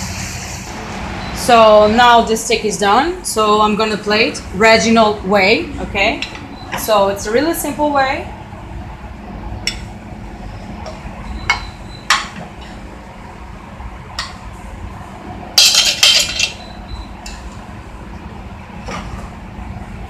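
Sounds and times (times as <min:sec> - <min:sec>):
steady low hum: 0:00.0 - 0:20.0
metal utensils clinking: 0:15.6 - 0:16.6.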